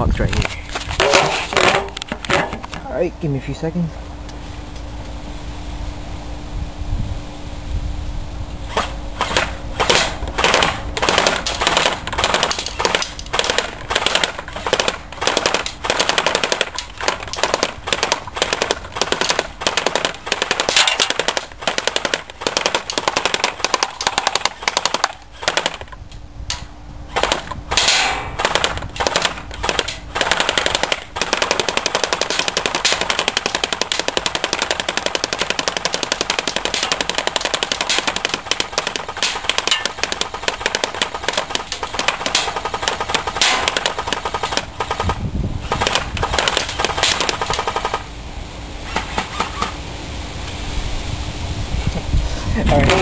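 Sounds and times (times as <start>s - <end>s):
airsoft rifle firing bursts: 9.2s - 25.9s, 27.2s - 48.0s.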